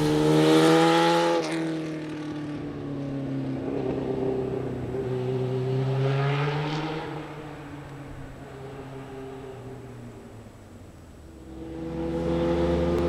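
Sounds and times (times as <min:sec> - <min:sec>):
motorcycle engine pulling away: 0:11.4 - 0:13.0.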